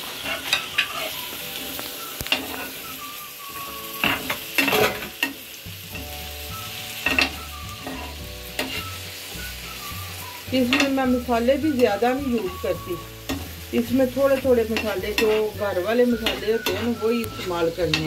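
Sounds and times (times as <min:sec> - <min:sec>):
food sizzling in oil: 0:00.0 - 0:18.0
spoon scraping pan: 0:00.1 - 0:01.2, 0:04.0 - 0:05.4, 0:06.9 - 0:09.0, 0:10.6 - 0:18.0.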